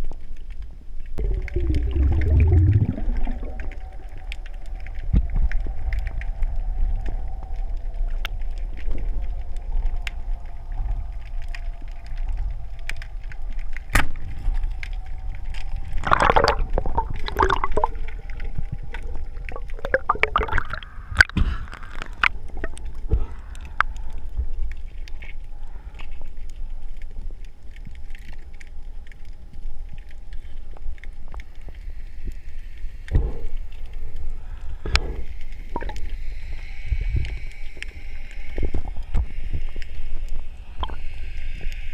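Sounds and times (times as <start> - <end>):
underwater rumble: 0.0 - 41.9
faint hum: 1.0 - 41.9
bubbly gurgling: 1.2 - 4.3, 15.6 - 23.8, 35.6 - 36.2.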